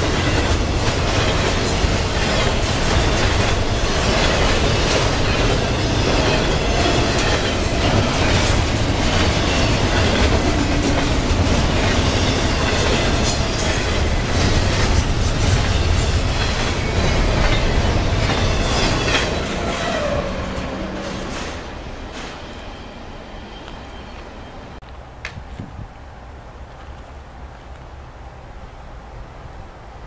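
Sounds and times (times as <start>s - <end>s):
wheels clicking over rail joints: 0.0s - 22.4s
train wheels rumbling on rail: 0.0s - 28.6s.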